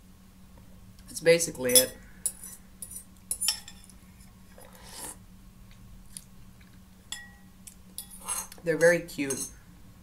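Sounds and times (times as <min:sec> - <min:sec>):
metal utensil clinking bowl: 0:01.6 - 0:03.9, 0:07.1 - 0:07.4, 0:08.0 - 0:09.6.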